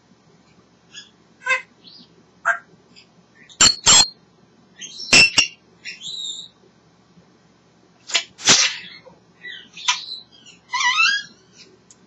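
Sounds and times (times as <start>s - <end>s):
parrot clicks and whistles: 3.6s - 4.1s
parrot harsh rasping call: 8.4s - 11.6s.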